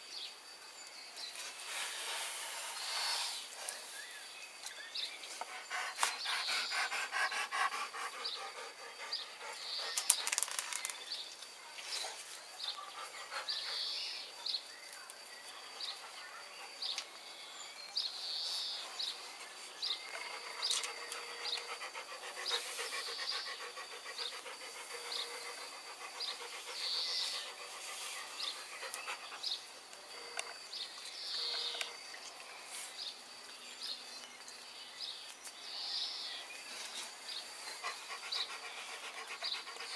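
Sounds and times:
dog panting: 0:05.4 - 0:10.2, 0:12.6 - 0:14.5, 0:20.0 - 0:29.7, 0:37.6 - 0:39.9.

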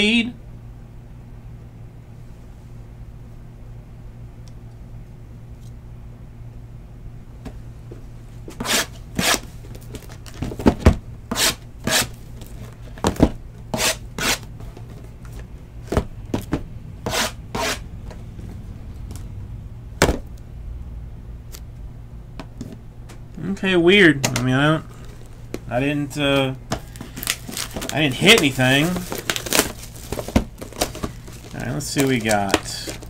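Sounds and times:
low hum: 0:14.6 - 0:33.0
cardboard scraping and tearing: 0:26.9 - 0:33.0.

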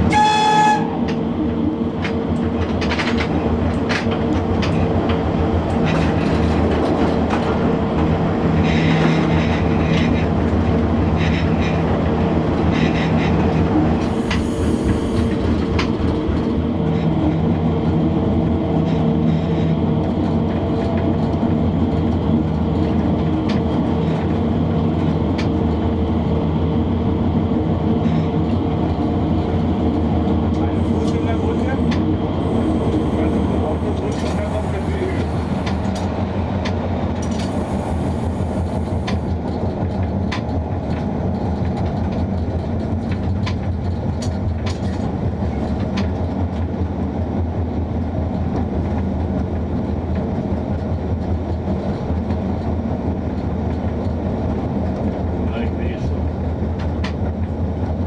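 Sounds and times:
electric locomotive hum: 0:00.0 - 0:58.0
wheels clicking over rail joints: 0:02.0 - 0:17.4, 0:33.7 - 0:37.8, 0:38.4 - 0:58.0.

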